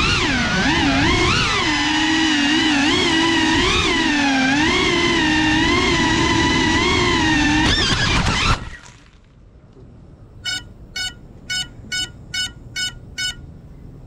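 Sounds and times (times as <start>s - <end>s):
drone motors whining: 0.0s - 8.8s
drone crashing into bamboo: 7.2s - 9.4s
buzzer beeps: 10.4s - 13.4s.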